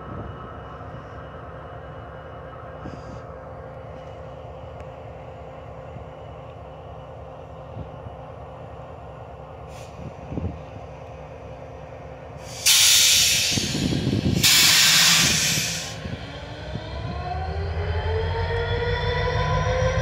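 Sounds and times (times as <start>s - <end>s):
idling locomotive engines rumble: 0.0s - 20.0s
loud compressed air hisses: 12.4s - 16.1s.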